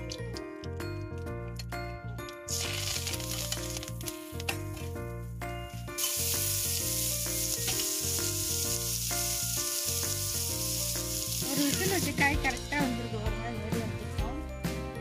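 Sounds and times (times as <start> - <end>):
background music with bass line: 0.0 - 15.0
onions sizzling in hot oil: 2.5 - 4.3, 5.8 - 12.3.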